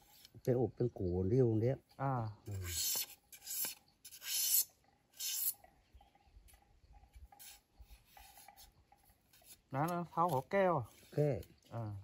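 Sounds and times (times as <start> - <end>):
knife scraping a stick: 0.0 - 0.4, 2.4 - 5.8, 6.5 - 12.0.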